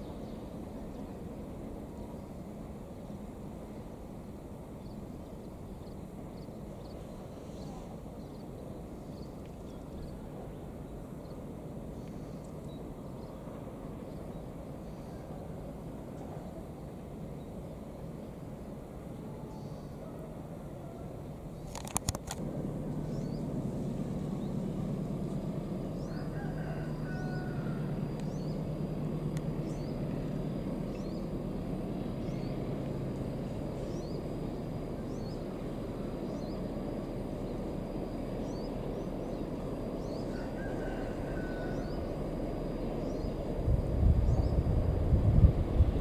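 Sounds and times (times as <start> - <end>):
diesel locomotive engine drone: 0.0 - 46.0
faint high insect-like chirps: 3.9 - 22.4, 24.2 - 32.7.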